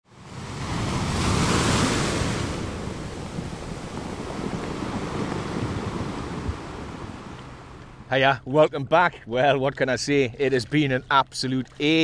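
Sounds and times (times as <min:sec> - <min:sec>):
wind rumbling on microphone: 0:00.1 - 0:08.1
sea waves breaking: 0:00.1 - 0:12.0.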